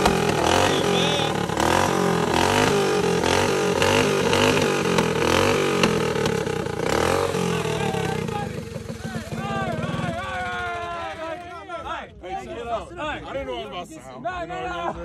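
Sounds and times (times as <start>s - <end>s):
mini bike engine revving: 0.0s - 11.2s.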